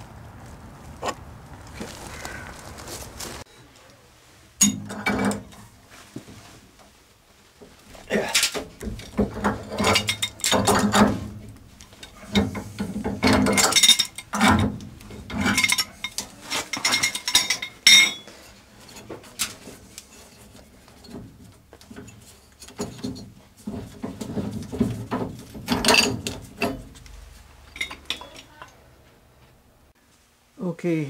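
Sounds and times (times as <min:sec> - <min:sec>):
pipe wrenches clinking on steel pipe: 0:08.4 - 0:11.3, 0:12.0 - 0:18.3, 0:24.8 - 0:27.1, 0:27.7 - 0:28.8
metal clank: 0:08.4 - 0:11.4, 0:24.1 - 0:28.7.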